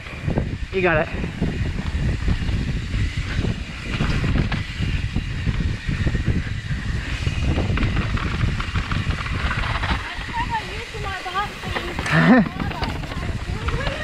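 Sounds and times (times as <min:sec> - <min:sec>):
bike rumble: 0:00.0 - 0:14.0
wind buffeting microphone: 0:00.0 - 0:14.0
bike knocks and rattles: 0:01.7 - 0:14.0.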